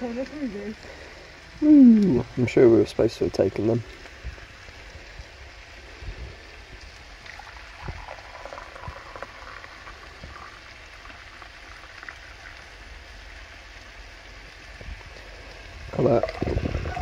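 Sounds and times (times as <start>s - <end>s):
coffee pouring into cup: 7.2s - 12.6s, 16.0s - 17.0s.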